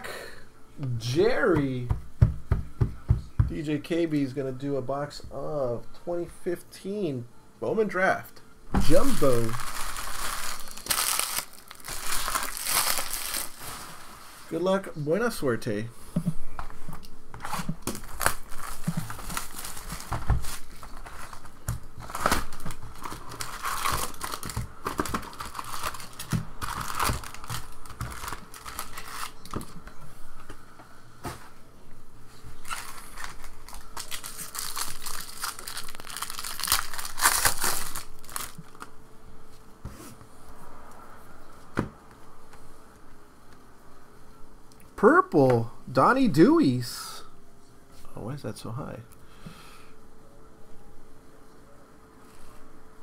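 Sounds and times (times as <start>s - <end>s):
card pack wrappers crinkling and tearing: 8.8s - 14.0s, 17.4s - 29.8s, 32.6s - 38.9s
rustles and scrapes of handling: 8.8s - 14.9s, 16.0s - 34.9s, 39.5s - 42.9s, 52.2s - 52.8s.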